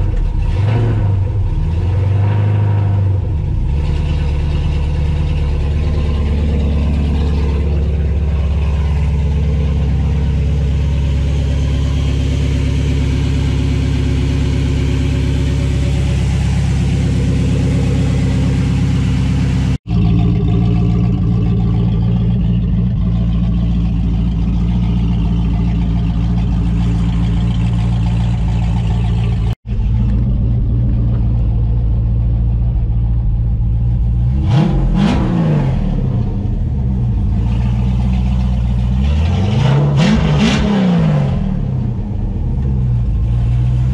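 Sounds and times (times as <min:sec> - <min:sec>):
pickup engine idling: 0:00.0 - 0:02.1, 0:02.7 - 0:35.0, 0:36.0 - 0:39.4.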